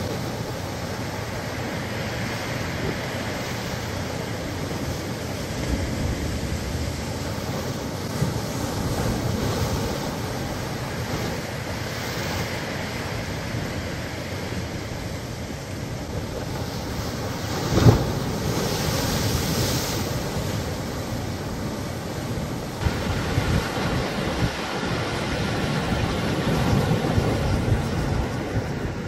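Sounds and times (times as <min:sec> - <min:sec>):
large wave crashing: 0:00.0 - 0:29.0
waves breaking against rocks: 0:00.0 - 0:29.0.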